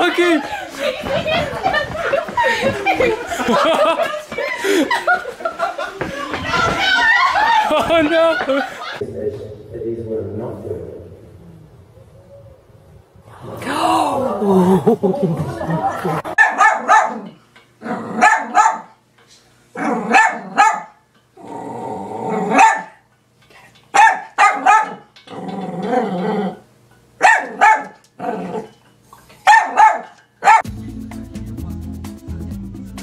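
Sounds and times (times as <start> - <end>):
small dog yapping: 16.4 - 17.3, 18.2 - 18.9, 22.4 - 23.0, 24.0 - 25.0, 27.2 - 28.7, 29.4 - 30.6
dog growling: 17.8 - 18.2, 19.8 - 20.6, 21.4 - 22.6, 25.3 - 26.7, 28.2 - 28.8
music: 30.6 - 33.0.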